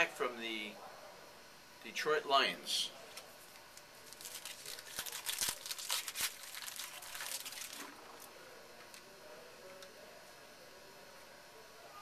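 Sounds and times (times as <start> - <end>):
wrapper crinkling: 3.6 - 8.3.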